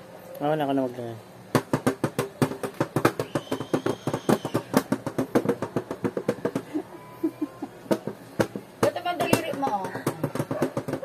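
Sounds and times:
hand drumming on metal tin lid: 7.9 - 11.0.

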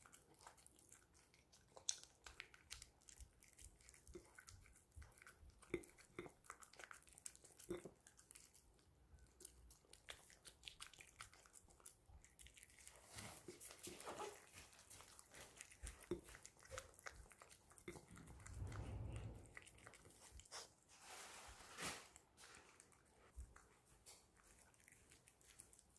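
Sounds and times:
dog chewing: 0.0 - 20.9, 22.5 - 25.9
low rumble: 17.9 - 20.4.

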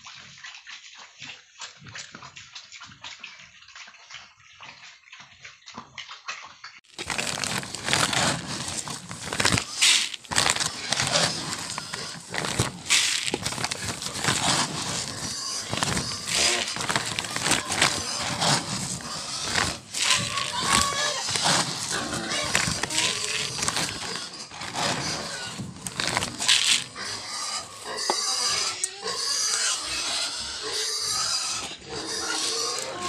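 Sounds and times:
piglet eating with wet slurping: 0.0 - 33.0
feed pellets rattling in plastic bowl: 6.9 - 28.4.

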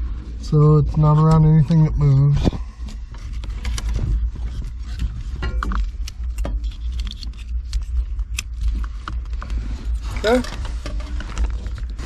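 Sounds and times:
steady low rumble: 0.0 - 12.0
light clicks and rustles of wiring: 2.4 - 12.0.

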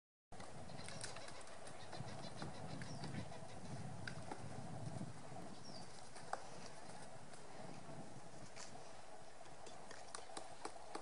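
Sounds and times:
woodpecker tapping on branch: 9.5 - 11.0.

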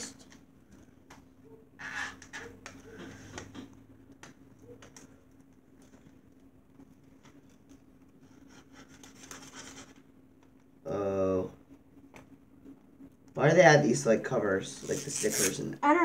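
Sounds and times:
scratching at plastic wrap: 14.8 - 15.6.

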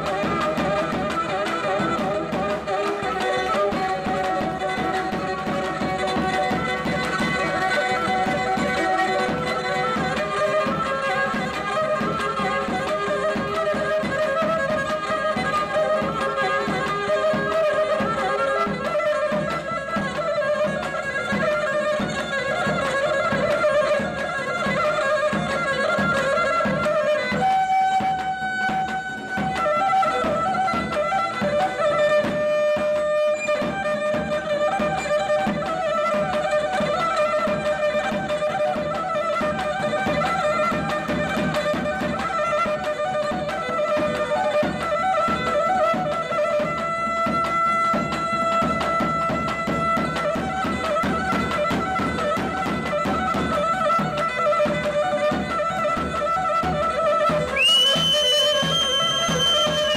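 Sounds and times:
lyra playing fast folk tune: 0.0 - 59.9.

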